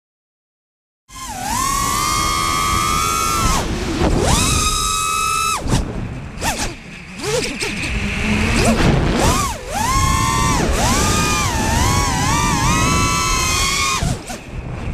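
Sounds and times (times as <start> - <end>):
drone motors whining: 1.1 - 14.9
wind rushing over microphone: 1.1 - 14.9.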